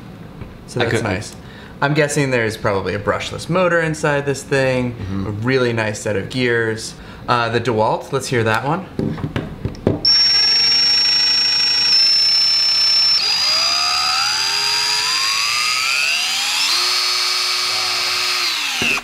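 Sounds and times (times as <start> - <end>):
cordless drill whining: 10.1 - 19.0.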